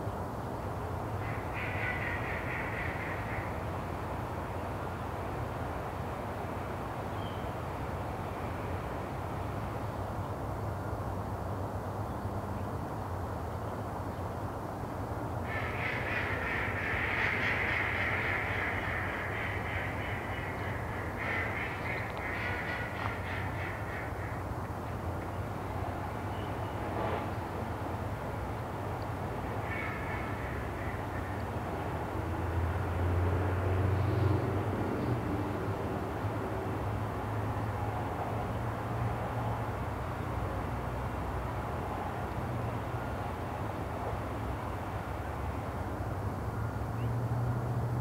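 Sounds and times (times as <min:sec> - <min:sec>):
bird calling: 0:01.2 - 0:03.6, 0:15.5 - 0:25.4, 0:29.6 - 0:31.6.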